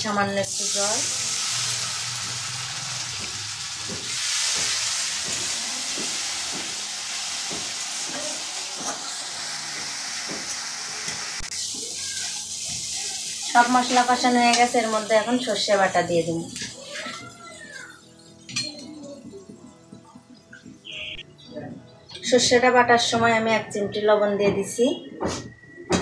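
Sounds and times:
paste sizzling in hot oil: 0:00.3 - 0:17.2.

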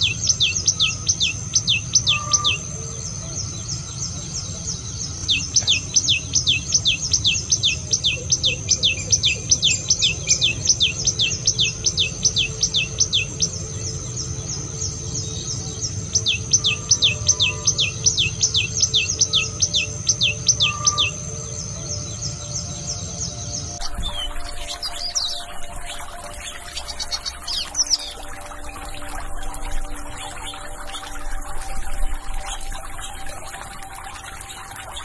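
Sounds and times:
bird singing falling notes: 0:23.8 - 0:35.0.

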